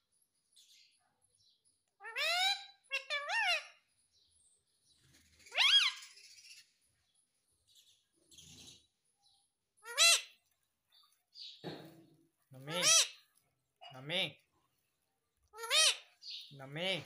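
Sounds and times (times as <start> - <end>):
parakeet shrill calls: 2.0 - 3.8, 5.4 - 6.7, 9.8 - 10.4, 12.7 - 13.2, 15.6 - 16.5.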